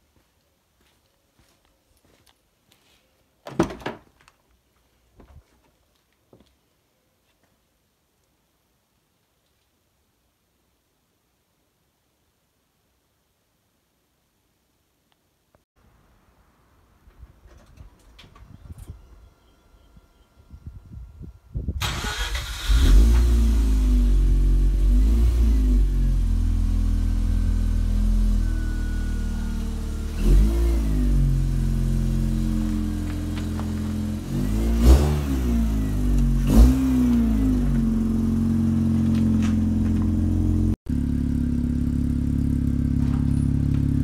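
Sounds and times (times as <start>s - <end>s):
rotary engine starting and revving: 21.8s - 44.0s.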